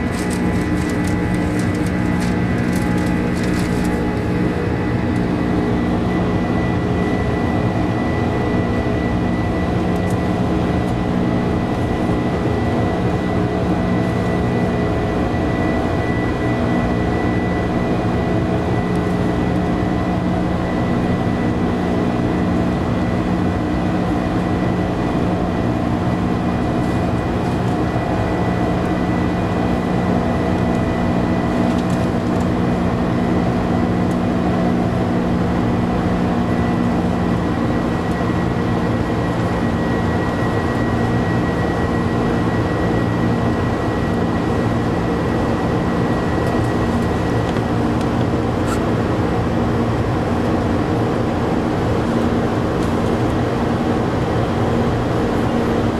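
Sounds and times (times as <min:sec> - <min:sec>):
airliner cabin engine hum: 0:00.0 - 0:55.9
thin high engine whine: 0:00.0 - 0:55.9.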